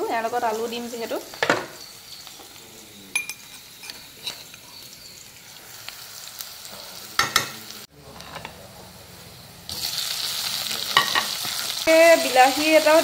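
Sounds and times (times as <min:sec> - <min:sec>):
onions sizzling in oil: 0:00.0 - 0:13.0
spoon scraping and clinking on pan: 0:03.1 - 0:05.1, 0:11.0 - 0:11.7.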